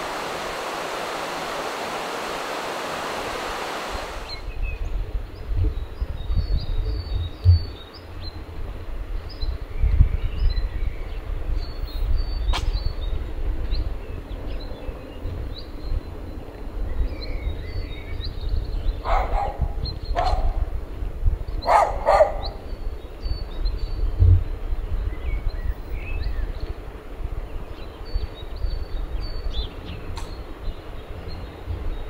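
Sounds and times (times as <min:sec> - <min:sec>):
steady low rumble: 0:00.0 - 0:05.7
small birds chirping: 0:00.0 - 0:08.5, 0:09.2 - 0:26.8
dog barking: 0:19.0 - 0:20.7, 0:21.7 - 0:22.6.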